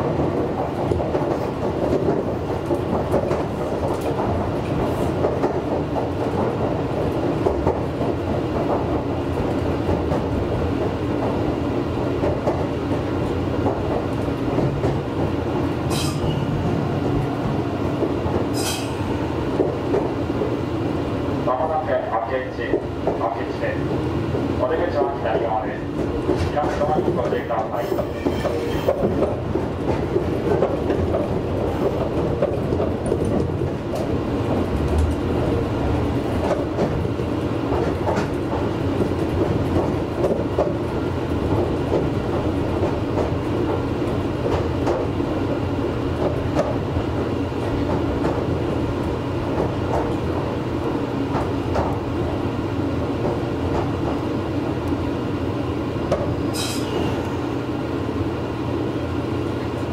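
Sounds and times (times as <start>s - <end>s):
train rolling noise: 0.0s - 59.9s
wheels clicking over rail joints: 26.0s - 35.6s.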